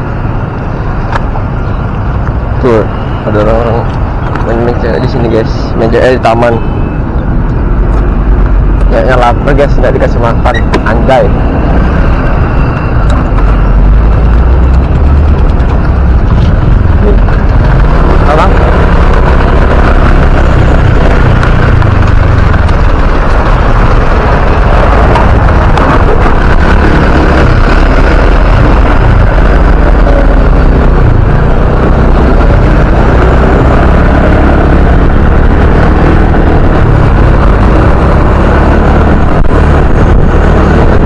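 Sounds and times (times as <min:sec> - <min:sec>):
surrounding traffic: 0:00.0 - 0:41.0
wind buffeting microphone: 0:10.7 - 0:41.0.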